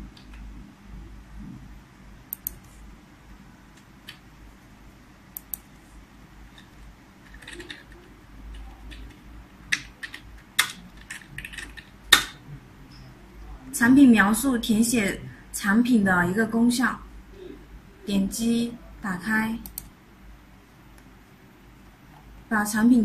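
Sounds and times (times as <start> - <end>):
computer keyboard typing: 6.5 - 12.4.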